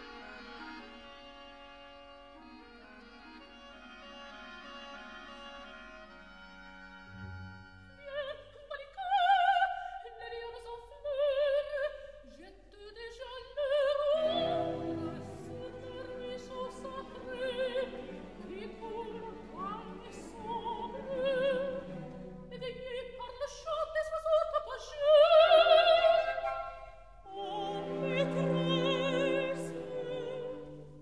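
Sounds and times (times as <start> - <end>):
operatic singing: 8.0 - 31.0
orchestral accompaniment: 14.0 - 23.5, 25.6 - 31.0.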